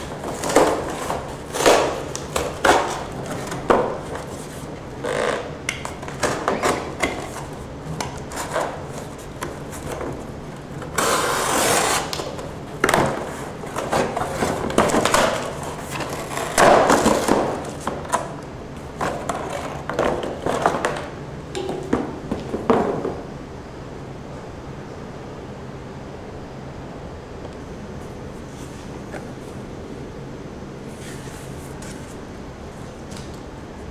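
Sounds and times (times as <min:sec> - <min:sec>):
utility knife slitting cardboard: 0:00.0 - 0:04.7, 0:10.9 - 0:18.0
cardboard tearing and rustling: 0:00.0 - 0:04.8, 0:05.9 - 0:18.3.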